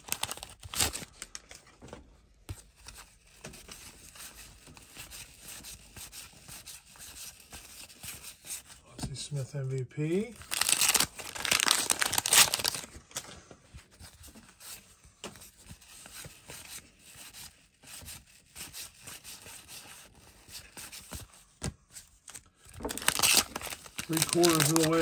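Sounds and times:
paper wrapper tearing: 0.0 - 1.5, 10.4 - 12.9, 22.3 - 25.0
paper crinkling: 0.0 - 8.7, 10.4 - 17.4, 21.9 - 25.0.

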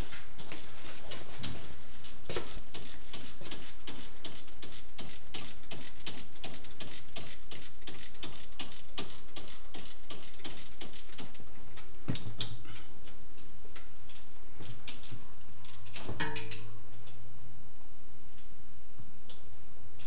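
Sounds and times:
ratchet wrench clicking: 2.5 - 11.4.

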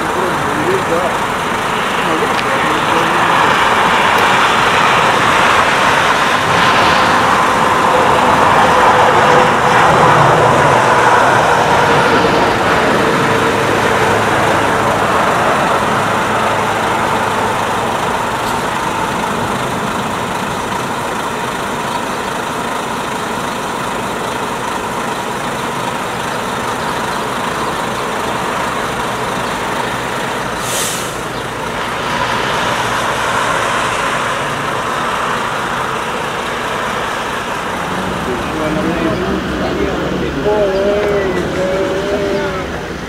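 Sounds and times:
jet engine roar with whine: 0.0 - 43.0
brief hiss: 30.6 - 31.2.

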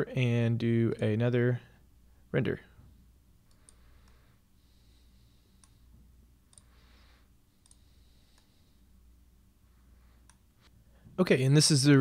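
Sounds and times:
computer mouse clicks: 3.4 - 4.2, 5.6 - 5.8, 6.5 - 6.8, 7.6 - 8.5, 10.2 - 10.4.

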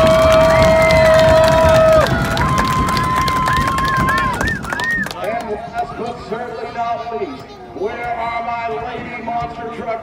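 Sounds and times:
crowd cheering and clapping: 0.0 - 5.6.

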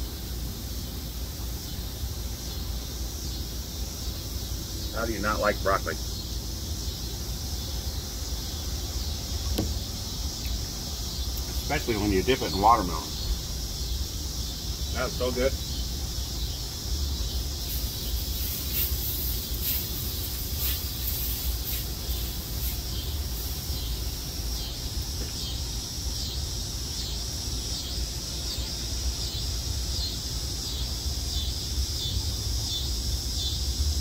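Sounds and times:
high rhythmic chirping: 8.5 - 24.8
vegetables sizzling in a wok: 17.5 - 24.7.

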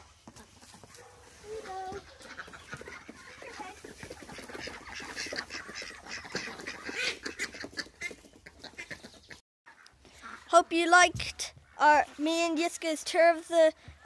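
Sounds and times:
rustling hay: 0.3 - 5.9
ducks quacking: 0.3 - 10.5.

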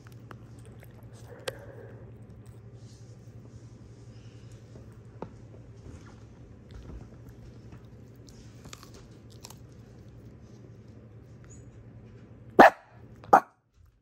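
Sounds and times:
dog gnawing bone: 0.0 - 2.8, 6.3 - 10.7.

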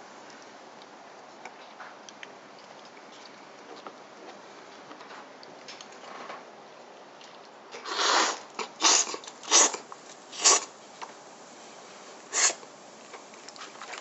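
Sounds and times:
loud noodle slurps: 7.8 - 10.7, 12.3 - 12.6.

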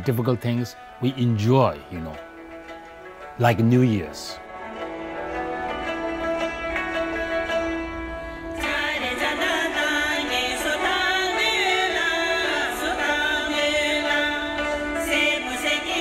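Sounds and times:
hammered dulcimer: 0.0 - 16.0
plucked lute: 1.7 - 16.0
person singing: 8.6 - 16.0.

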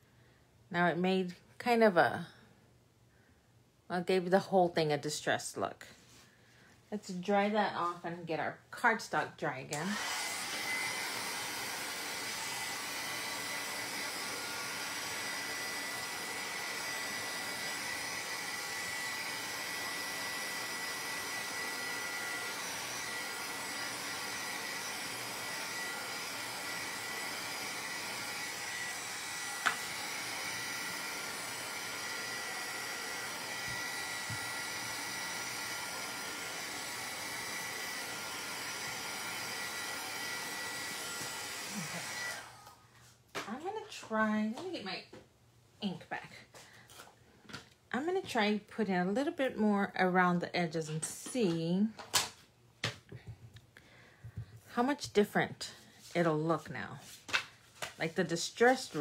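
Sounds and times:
heat tool blowing with whine: 9.8 - 42.8.

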